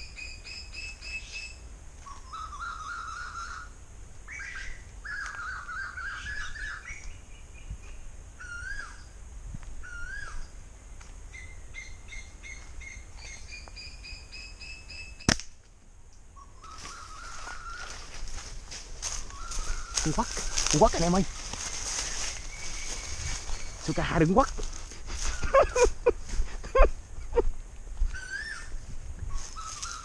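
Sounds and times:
birds calling: 0:00.0 - 0:09.2, 0:16.4 - 0:27.5, 0:28.1 - 0:30.0
sharp snap: 0:15.2 - 0:15.6.

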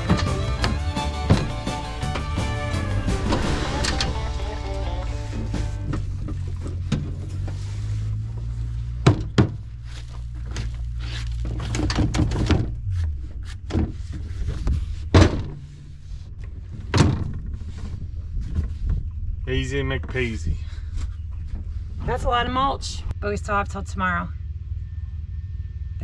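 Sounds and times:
loud thunks and knocks: 0:00.0 - 0:07.2, 0:09.0 - 0:09.6, 0:15.1 - 0:15.6.

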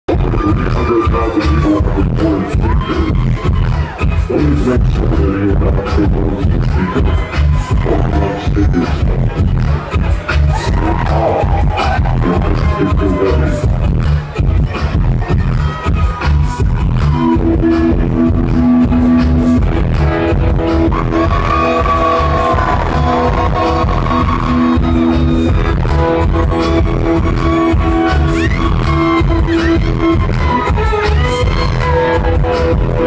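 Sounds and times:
heavy bass beat: 0:00.0 - 0:33.0
live music through pa: 0:00.1 - 0:33.0
gliding guitar line: 0:17.0 - 0:33.0.

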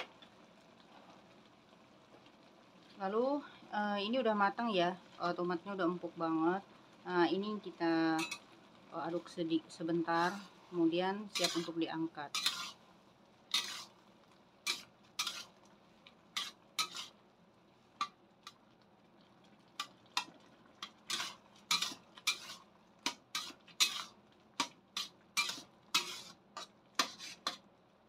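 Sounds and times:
metal ladle scraping wok: 0:08.2 - 0:08.5, 0:10.1 - 0:10.6, 0:11.2 - 0:12.8, 0:13.5 - 0:14.0, 0:14.6 - 0:15.6, 0:16.3 - 0:17.2, 0:19.8 - 0:27.6.

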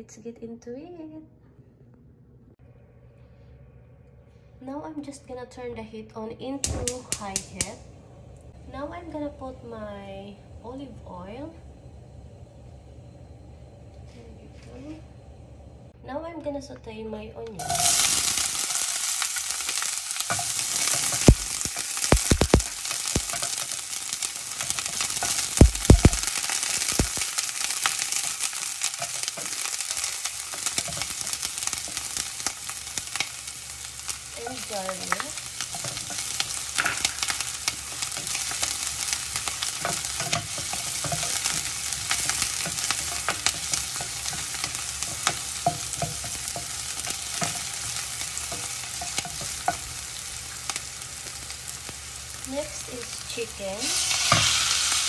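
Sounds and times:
onion sizzling in oil: 0:17.6 - 0:55.0
spoon scraping a pan: 0:19.0 - 0:33.4, 0:34.1 - 0:50.0, 0:54.0 - 0:55.0
spoon knocking on a pan: 0:24.6 - 0:27.2.

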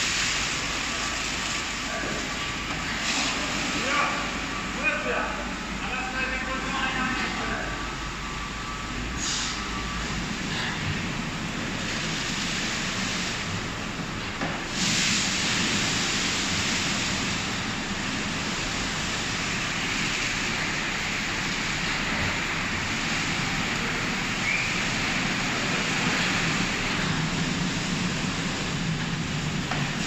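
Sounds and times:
car wash spraying and blowing: 0:00.0 - 0:30.0.

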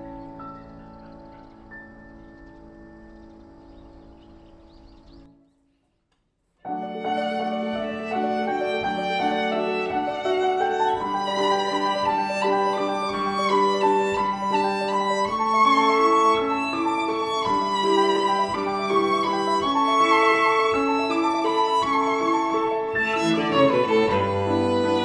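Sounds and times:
violin slow melody: 0:06.7 - 0:25.0.

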